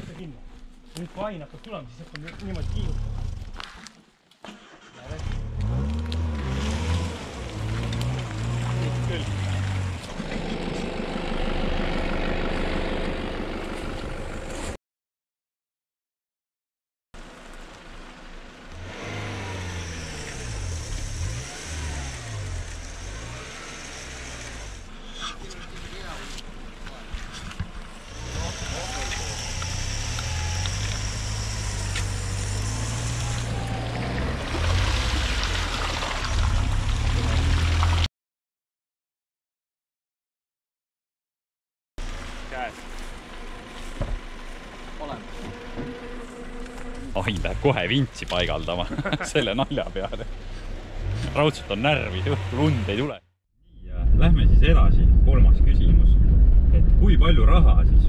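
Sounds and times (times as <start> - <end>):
engine running: 4.6 - 14.8, 17.2 - 38.1, 42.0 - 53.2
water and mud splashing: 6.8 - 10.3, 33.8 - 38.1.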